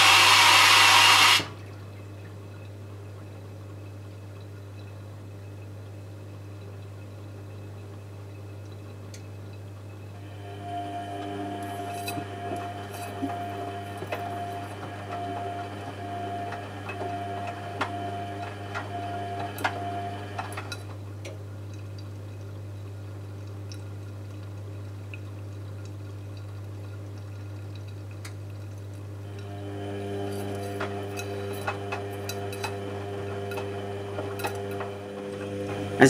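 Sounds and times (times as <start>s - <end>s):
washing machine whine: 0.0s - 21.6s, 28.8s - 36.0s
water sloshing in washing machine drum: 10.2s - 21.0s.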